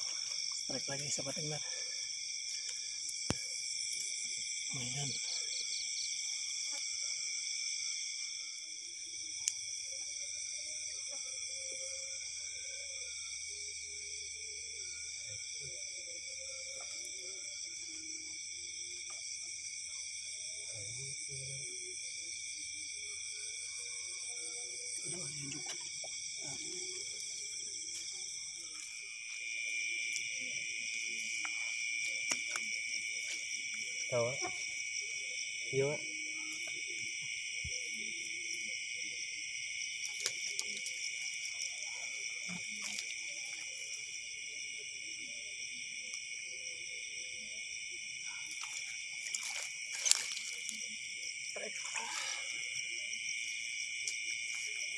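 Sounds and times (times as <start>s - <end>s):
crickets and insects trilling: 0.0s - 54.9s.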